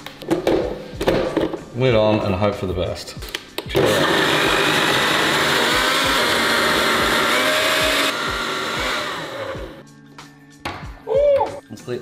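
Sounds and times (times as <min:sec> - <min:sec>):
blender blending: 0:03.7 - 0:09.8.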